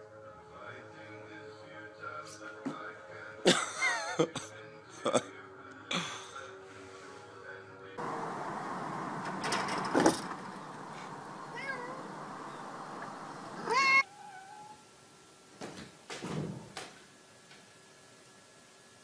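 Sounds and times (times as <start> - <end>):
cat meowing: 11.4 - 12.8, 13.6 - 14.9.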